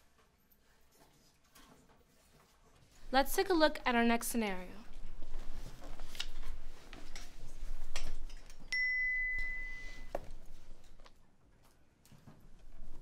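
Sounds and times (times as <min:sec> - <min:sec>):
steady high tone: 0:08.8 - 0:10.1.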